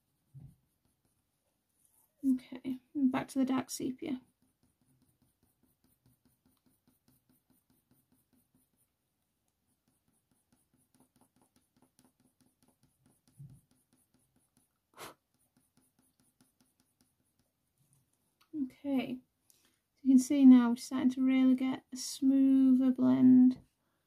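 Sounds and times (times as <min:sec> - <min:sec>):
pencil scratching on paper: 0:00.0 - 0:17.9.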